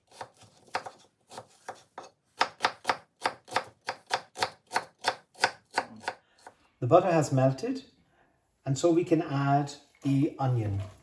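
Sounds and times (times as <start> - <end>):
knife chopping onion on wooden board: 0.0 - 6.6.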